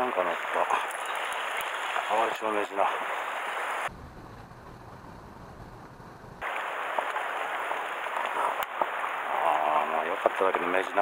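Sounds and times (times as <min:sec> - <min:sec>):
sea water washing over rocks: 0:06.4 - 0:11.0.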